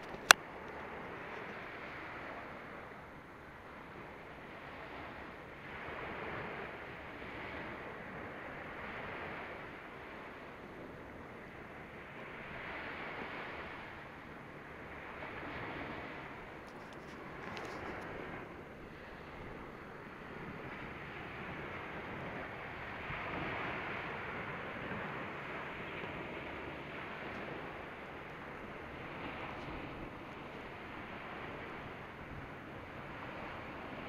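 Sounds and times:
ocean surf washing onto beach: 0.0s - 34.0s.

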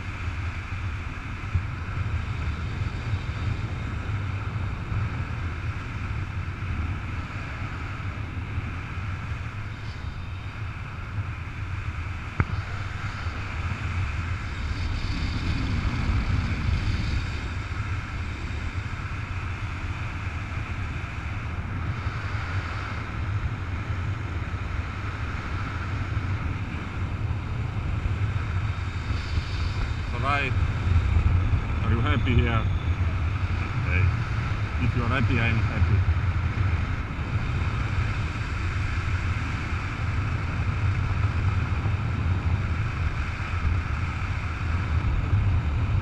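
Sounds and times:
wind rushing over microphone: 0.0s - 46.0s.

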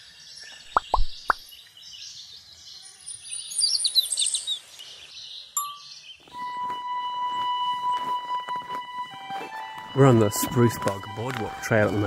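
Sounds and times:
high chirps: 0.6s - 1.4s, 5.5s - 6.4s
pops: 0.7s - 1.4s
ding: 5.6s - 5.9s.

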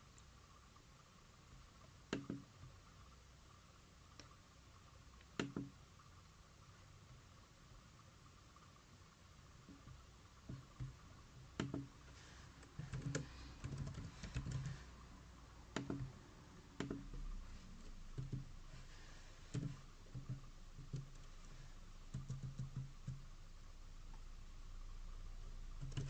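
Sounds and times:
keyboard typing: 12.7s - 14.8s, 15.7s - 16.2s, 16.8s - 17.2s, 18.2s - 18.5s, 19.5s - 21.4s, 22.1s - 23.2s, 25.8s - 26.0s.

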